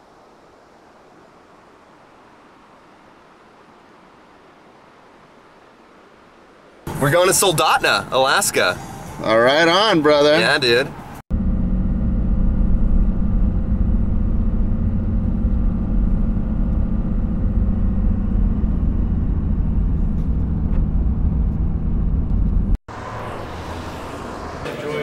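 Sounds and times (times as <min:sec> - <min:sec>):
car cabin road drone: 0:10.4 - 0:25.0.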